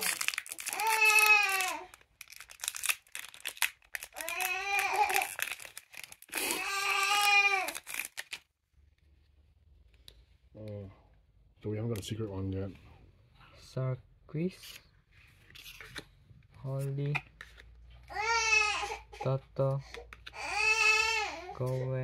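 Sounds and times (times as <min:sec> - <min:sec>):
child crying out high-pitched: 0:00.0 - 0:01.8, 0:04.2 - 0:05.4, 0:06.4 - 0:07.8
foil wrappers crinkling: 0:00.0 - 0:08.5.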